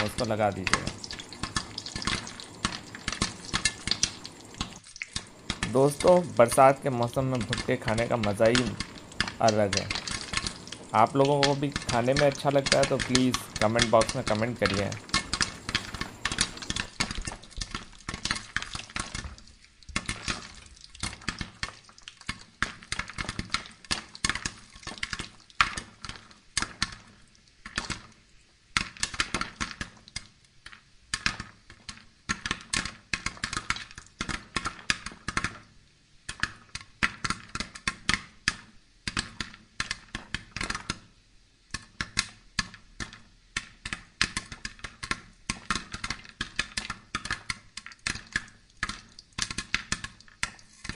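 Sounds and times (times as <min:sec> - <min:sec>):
charcoal embers crackling: 0:00.0 - 0:25.3, 0:43.6 - 0:50.9
corn kernels popping: 0:00.0 - 0:28.1, 0:41.7 - 0:50.9.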